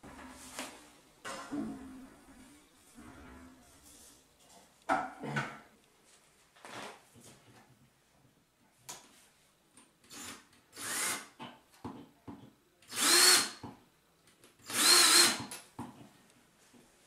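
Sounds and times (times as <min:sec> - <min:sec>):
cordless drill boring into tile: 0:10.1 - 0:11.3, 0:12.9 - 0:13.6, 0:14.6 - 0:15.5.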